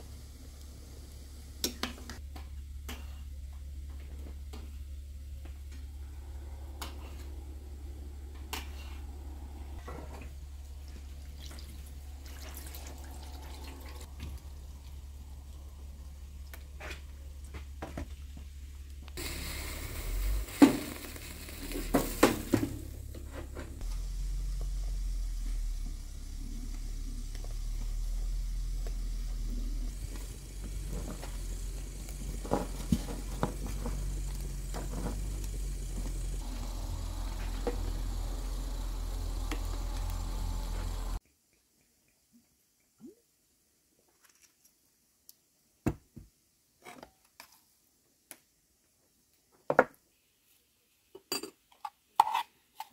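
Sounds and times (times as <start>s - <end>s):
steady low hum: 0.0s - 41.2s
water trickling and dripping: 10.6s - 16.7s.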